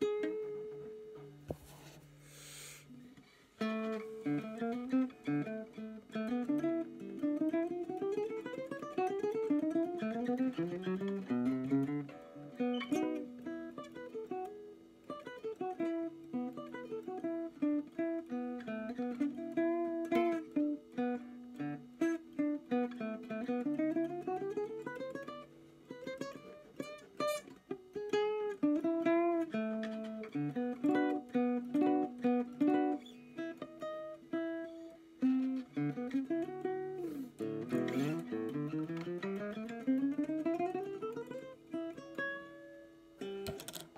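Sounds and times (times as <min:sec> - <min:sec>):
nylon-string guitar fingerstyle: 0:00.0 - 0:43.9.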